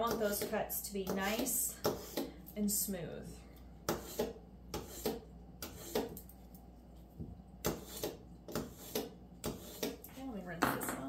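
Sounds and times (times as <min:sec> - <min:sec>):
knife scraping on sharpener: 0:03.9 - 0:06.3, 0:07.6 - 0:10.0.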